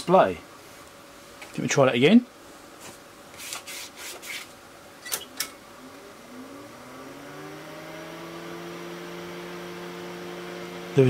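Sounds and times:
cooling fan hum: 0:00.0 - 0:11.0.

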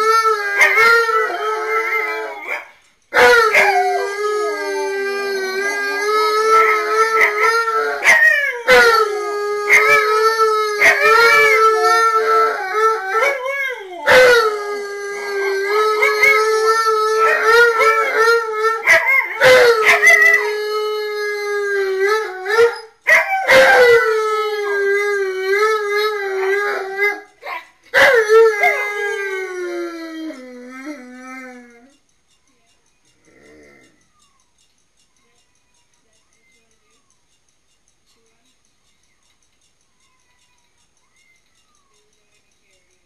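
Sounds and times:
dog howling: 0:00.0 - 0:02.6, 0:03.2 - 0:31.9.

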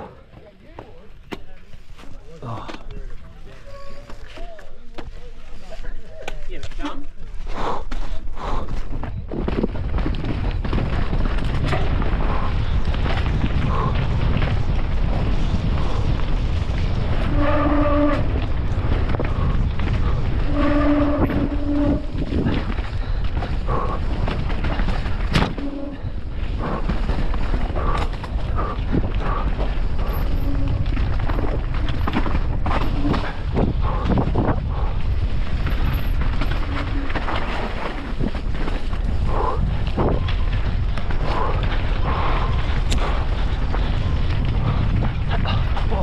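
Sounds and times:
bike knocks and clatter: 0:08.9 - 0:16.9.

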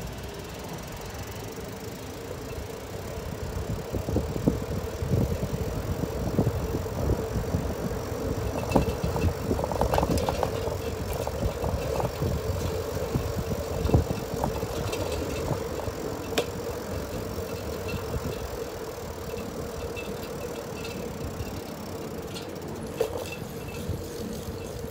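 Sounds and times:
bicycle rumbling and rattling on road: 0:00.0 - 0:24.9
faint steady hum: 0:00.0 - 0:24.9
sharp clicks from bumps: 0:02.2 - 0:24.9.

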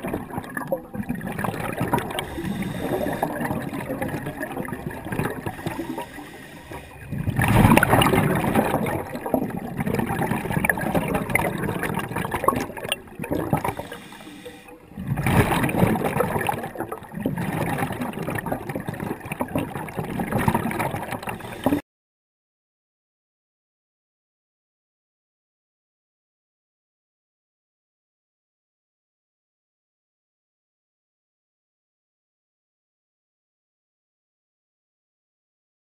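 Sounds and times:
underwater bubbles gurgling: 0:00.0 - 0:21.8.

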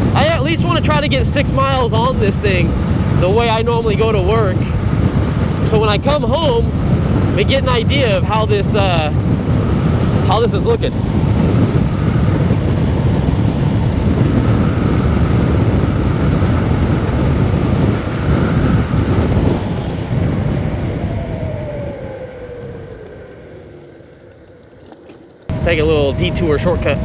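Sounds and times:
faint electric motor whine: 0:00.0 - 0:27.0
road rumble: 0:00.0 - 0:27.0
wind rushing over microphone: 0:00.0 - 0:27.0.

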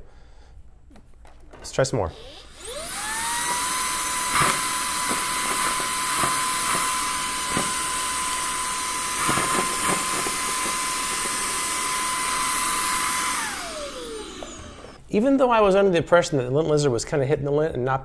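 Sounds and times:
vacuum cleaner motor whine: 0:02.0 - 0:15.0.

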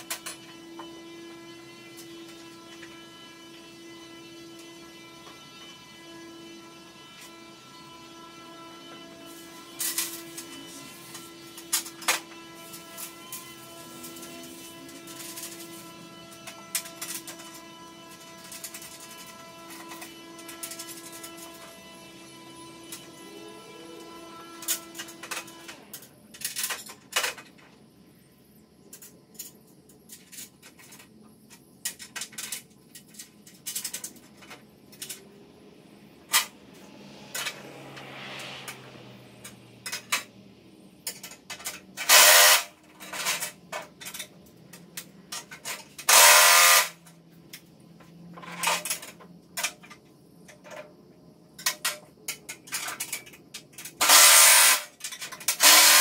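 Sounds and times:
cordless drill driving nuts: 0:54.0 - 0:54.9, 0:55.5 - 0:56.0.

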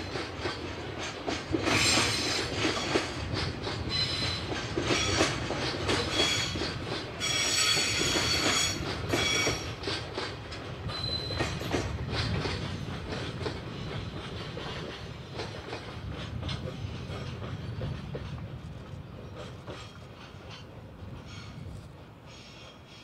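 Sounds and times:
low train rumble: 0:00.0 - 0:23.0
train wheels clicking over rail joints: 0:00.0 - 0:23.0
high wheel squeal: 0:07.2 - 0:09.7, 0:10.9 - 0:11.6.

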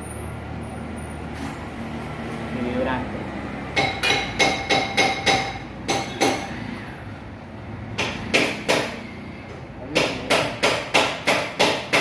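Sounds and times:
hammer striking metal: 0:03.8 - 0:06.6, 0:08.0 - 0:09.1, 0:09.9 - 0:12.0.

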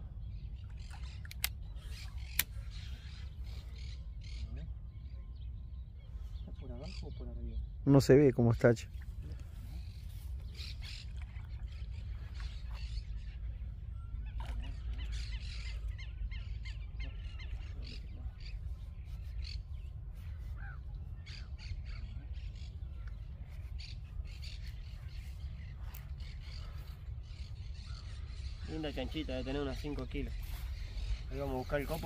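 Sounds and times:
steady low rumble: 0:00.0 - 0:32.0
birds squawking: 0:00.4 - 0:05.4, 0:08.6 - 0:32.0.

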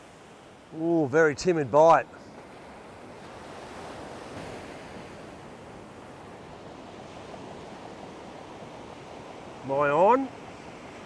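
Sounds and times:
ocean surf breaking on beach: 0:00.0 - 0:11.0.

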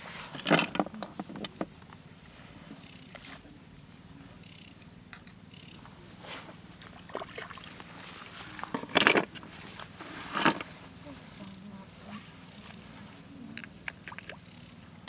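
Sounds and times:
low steady buzz: 0:00.0 - 0:15.0
grass rustling: 0:05.8 - 0:14.1
splashy handling noises: 0:06.8 - 0:09.4.

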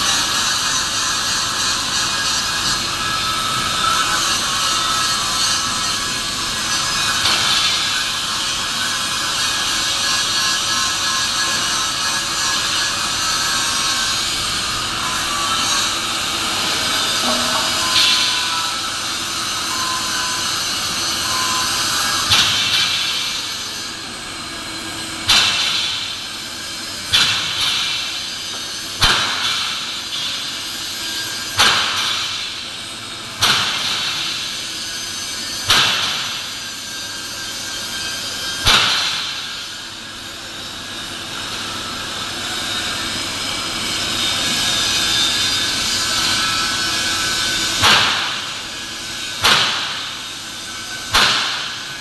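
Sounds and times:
industrial hall noise: 0:00.0 - 0:52.0
sharp reverberant bangs: 0:51.0 - 0:52.0.

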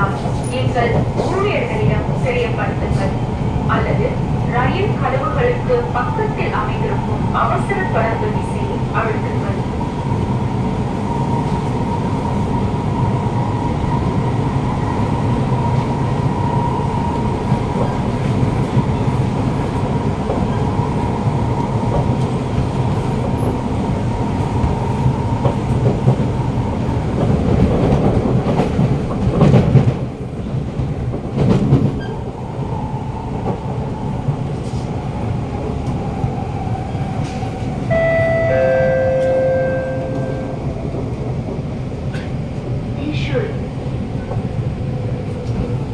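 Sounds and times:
wheels rumbling on rail: 0:00.0 - 0:45.9
two-note chime: 0:37.9 - 0:40.6.

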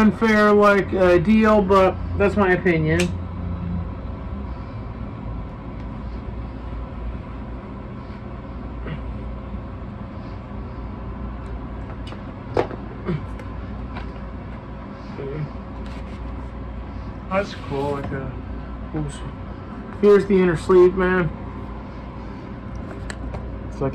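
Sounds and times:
low background hum: 0:00.0 - 0:23.9.

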